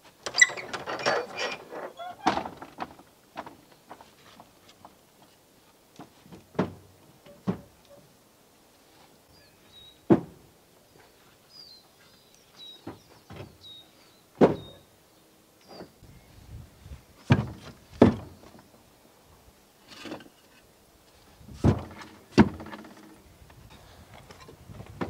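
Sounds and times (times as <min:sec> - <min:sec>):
bird chirping: 0:11.0 - 0:16.3.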